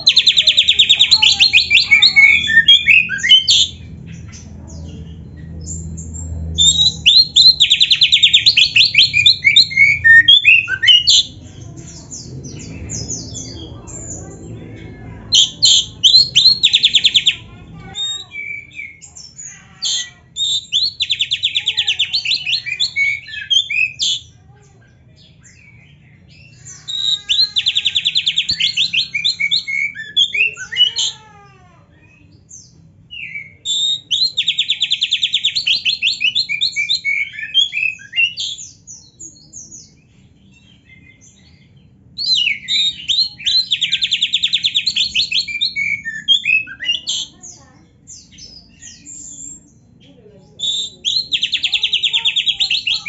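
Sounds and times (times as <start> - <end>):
bird whistles and chattering: 0.0 - 3.8, 5.7 - 11.4, 15.4 - 24.3, 26.5 - 31.2, 33.1 - 38.8, 42.2 - 49.7, 50.6 - 53.0
bird singing fast trills: 0.0 - 24.4, 25.2 - 31.2, 32.1 - 53.0.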